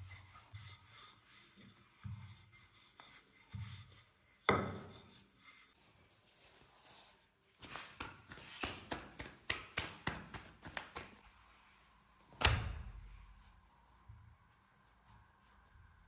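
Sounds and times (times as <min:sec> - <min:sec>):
hands slapping dough: 0:07.6 - 0:11.3.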